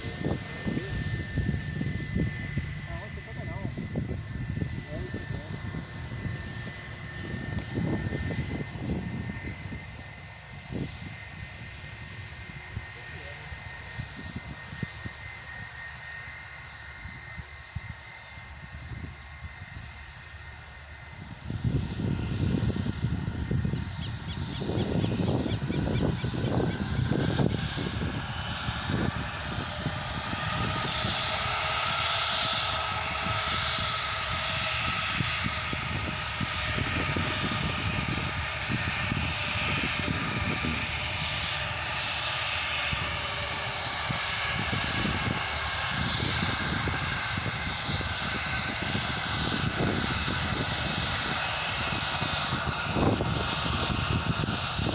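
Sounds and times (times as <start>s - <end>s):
gusty low rumbling: 0.0s - 15.6s, 16.6s - 54.9s
jet engines whining: 0.0s - 54.9s.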